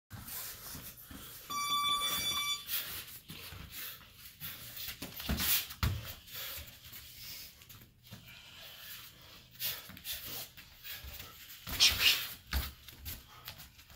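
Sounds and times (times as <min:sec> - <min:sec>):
electronic timer buzzer: 0:01.5 - 0:02.7.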